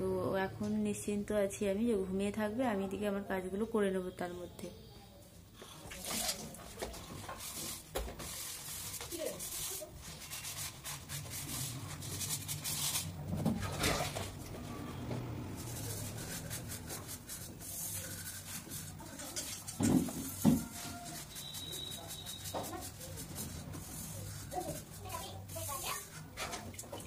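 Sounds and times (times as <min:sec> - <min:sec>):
sponge scrubbing dishes: 0:05.8 - 0:27.0.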